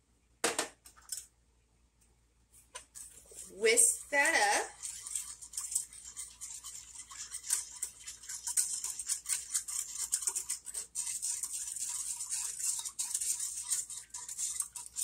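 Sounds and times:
whisk scraping in saucepan: 3.0s - 15.0s.

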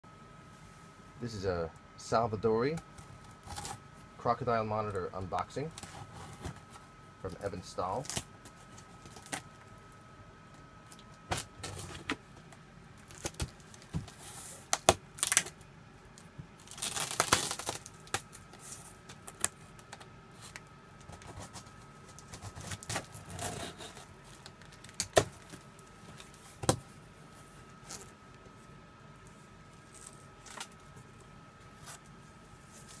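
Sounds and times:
packing tape tearing: 13.0s - 15.6s, 16.6s - 25.6s.

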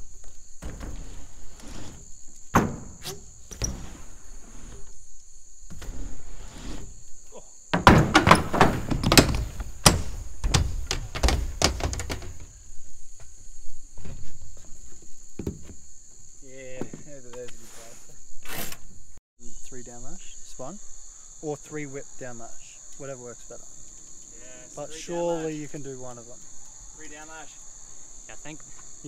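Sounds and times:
bike crashing knocks and clatters: 0.0s - 3.7s, 7.7s - 12.7s
high insect chirr: 0.0s - 29.0s
knocks of bike riding: 7.7s - 17.5s.

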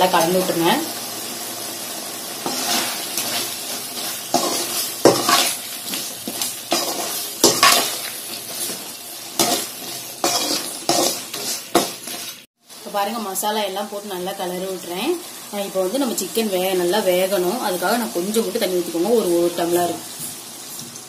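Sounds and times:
curry sizzling: 0.0s - 21.0s
metal ladle scraping a pan: 2.4s - 12.5s.

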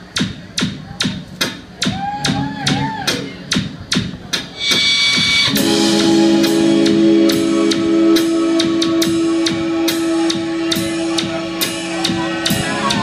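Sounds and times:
drum kit beat: 0.0s - 13.0s
held chord on keyboards and guitar: 5.4s - 13.0s.

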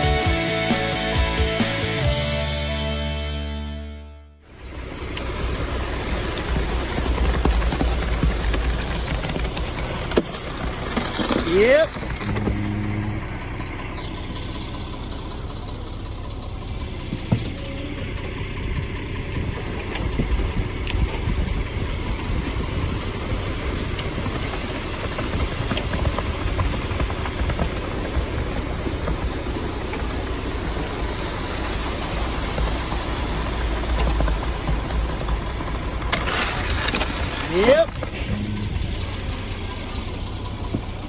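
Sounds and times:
diesel truck engine running: 0.0s - 41.0s
concrete pouring down chute: 4.6s - 12.2s, 21.3s - 38.3s.

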